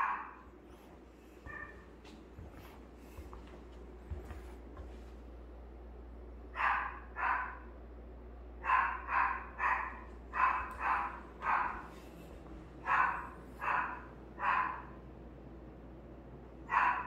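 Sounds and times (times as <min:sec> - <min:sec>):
dog barking: 0:00.0 - 0:00.4, 0:01.4 - 0:01.8, 0:06.5 - 0:07.7, 0:08.6 - 0:12.0, 0:12.8 - 0:15.0, 0:16.7 - 0:17.0.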